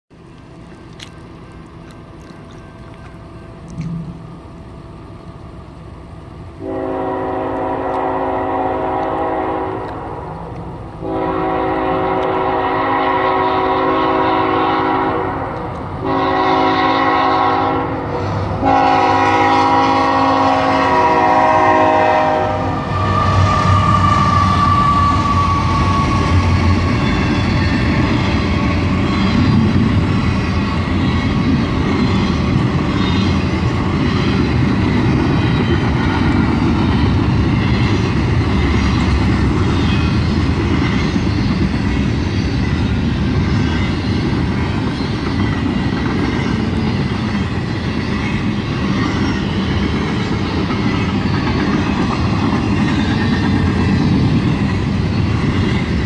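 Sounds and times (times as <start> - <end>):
freight train rumbling past: 0.1 - 56.0
locomotive air horn blasts: 6.6 - 10.4, 11.0 - 26.6.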